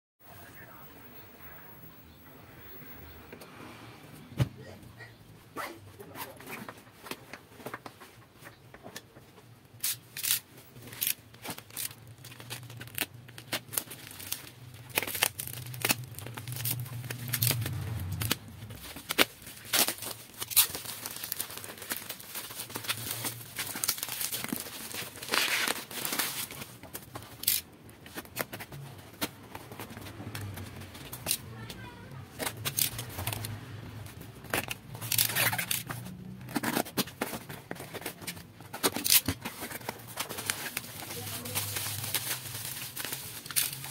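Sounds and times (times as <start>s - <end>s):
clicks and scrapes of package: 9.7s - 43.9s
plastic wrap crinkling: 9.7s - 43.9s
tape tearing: 9.8s - 31.7s, 32.3s - 33.6s, 34.4s - 43.9s.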